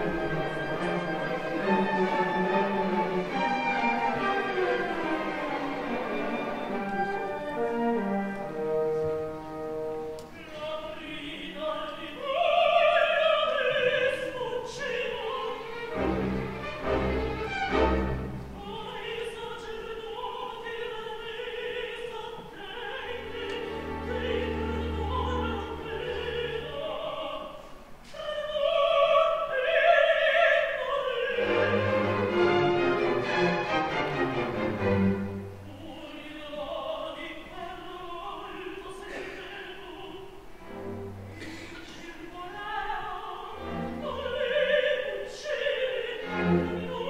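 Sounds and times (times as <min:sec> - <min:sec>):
orchestra playing: 0:00.0 - 0:11.4, 0:15.1 - 0:19.2, 0:22.9 - 0:27.6, 0:31.2 - 0:35.9, 0:40.4 - 0:41.7
woman singing opera with vibrato: 0:00.0 - 0:16.9, 0:17.7 - 0:47.0.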